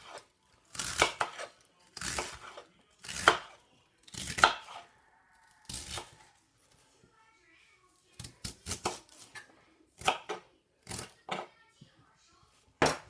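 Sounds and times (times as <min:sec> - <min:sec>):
knife slicing cabbage on board: 0:00.0 - 0:04.9, 0:08.4 - 0:11.4.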